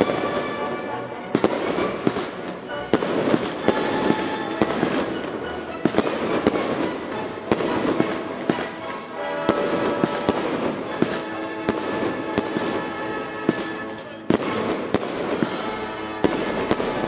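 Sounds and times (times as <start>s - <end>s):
fireworks bursting: 0.0s - 17.0s.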